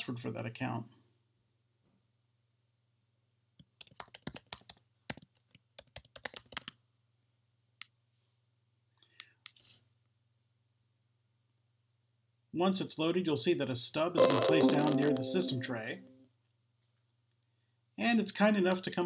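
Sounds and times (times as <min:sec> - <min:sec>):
typing on computer keyboard: 0:03.7 - 0:06.8.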